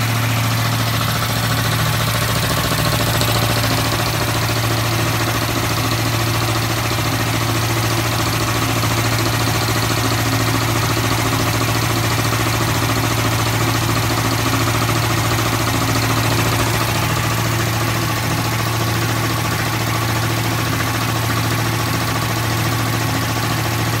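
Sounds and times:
air compressor humming: 0:00.0 - 0:11.0, 0:13.7 - 0:21.2.

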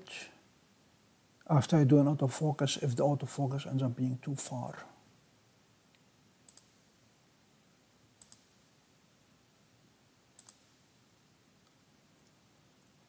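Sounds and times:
computer mouse button clicks: 0:10.4 - 0:10.7.

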